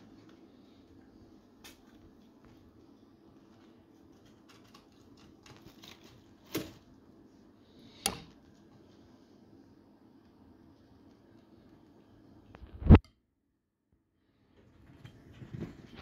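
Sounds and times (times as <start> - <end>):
rats scratching and rustling: 0.0 - 7.4, 14.7 - 16.0.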